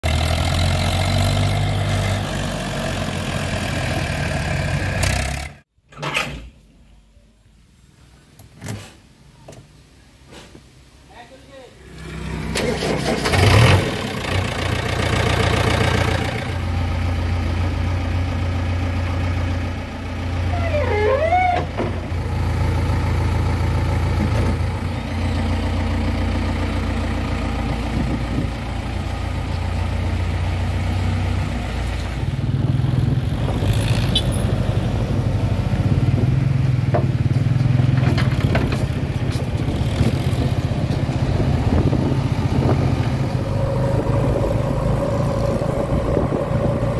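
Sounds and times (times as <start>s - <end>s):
diesel engine starting and idling: 11.8s - 46.9s.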